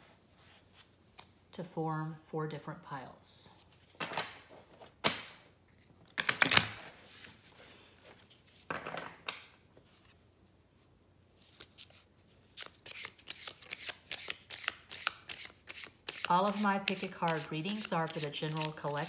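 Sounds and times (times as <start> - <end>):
cards rustling and sliding: 11.4 - 19.0.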